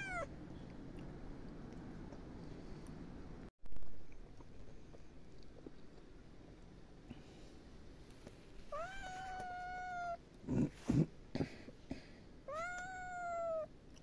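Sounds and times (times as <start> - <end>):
kitten meowing: 0.0 - 0.3, 12.5 - 13.7.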